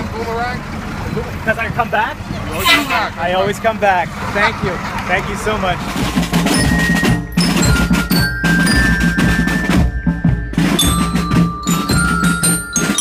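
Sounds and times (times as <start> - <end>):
bass drums: 4.6 - 13.0
snare drum: 5.9 - 13.0
bell lyres playing tune: 6.2 - 13.0.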